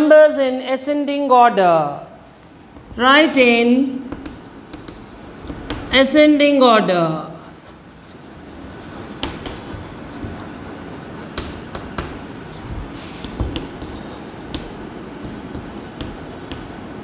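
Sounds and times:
steady background hiss: 0.0 - 17.0
chalk tapping and scratching: 4.1 - 5.9, 7.6 - 17.0.

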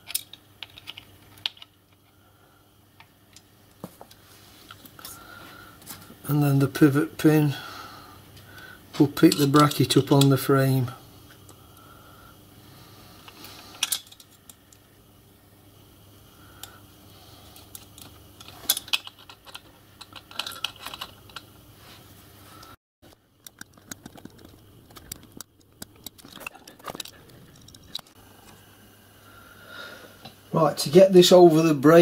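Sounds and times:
small steel parts clicking: 0.0 - 2.1, 13.3 - 14.8, 17.5 - 21.5, 23.1 - 28.2.

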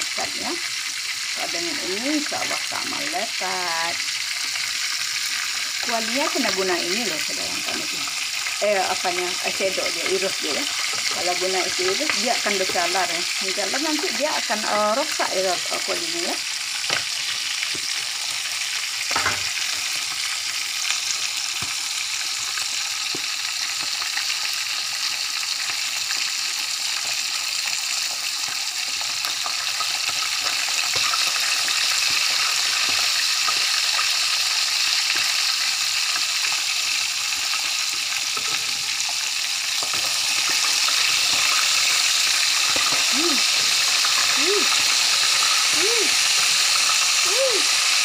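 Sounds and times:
fish sizzling in a pan: 0.0 - 48.0.

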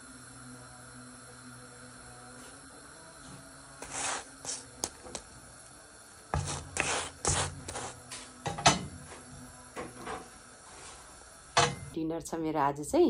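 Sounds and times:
spatula scraping a roti: 3.8 - 4.8, 6.4 - 8.1.

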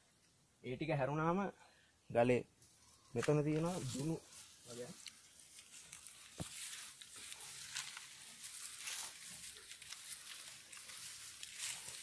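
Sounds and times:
rustling in dry grass: 2.6 - 12.0.

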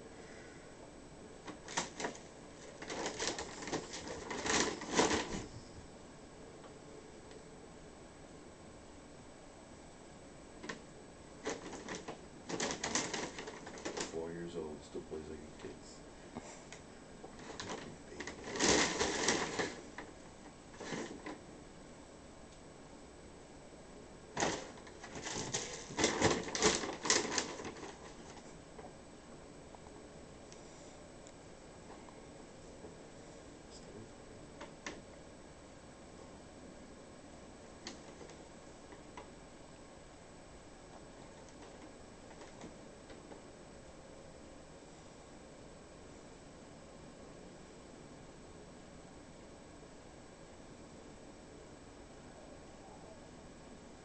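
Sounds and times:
bag rustling and crinkling: 1.6 - 5.6, 11.4 - 14.2, 17.3 - 21.4, 24.4 - 28.6.

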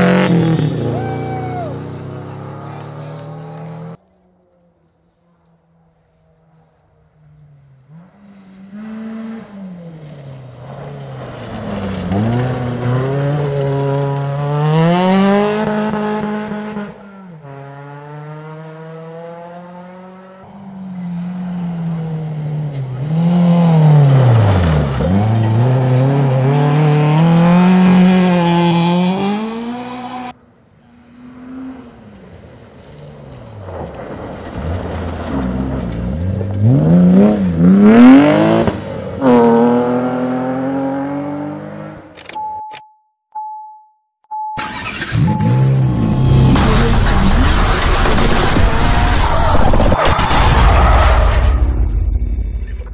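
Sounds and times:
rally cars passing at speed: 0.0 - 42.1.

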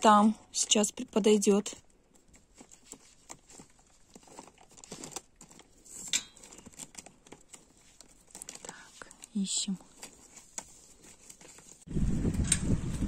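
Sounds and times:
crinkle: 0.4 - 11.9
faint rustling: 1.6 - 11.9.

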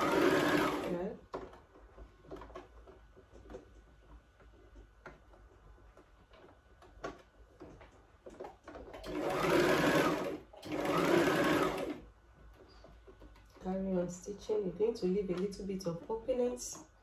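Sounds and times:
electric sewing machine stitching: 0.0 - 1.2, 8.8 - 12.1.

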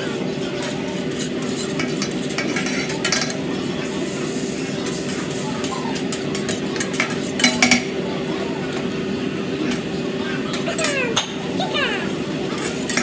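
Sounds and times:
metal spatulas scraping a griddle: 0.0 - 7.9, 12.5 - 13.0
food sizzling: 0.0 - 13.0.

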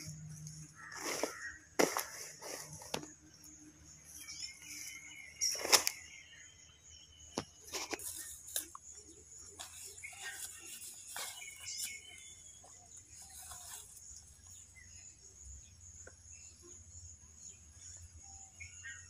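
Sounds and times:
leaves rustling: 0.0 - 3.1, 9.5 - 14.5
faint bird chirps: 0.0 - 19.0
rustling thud: 0.9 - 3.1.

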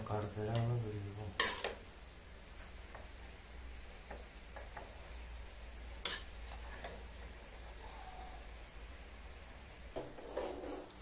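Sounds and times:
spoon scraping pot: 10.0 - 11.0.

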